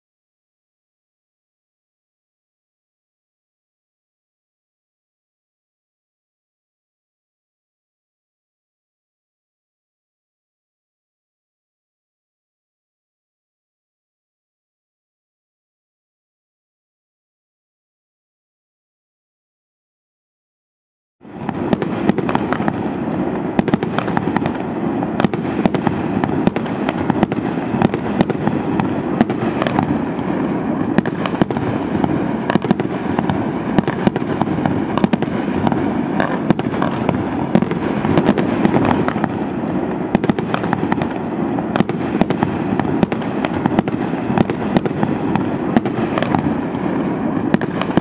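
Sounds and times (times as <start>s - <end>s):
continuous firework noise: 21.2s - 48.0s
fireworks bangs: 21.2s - 48.0s.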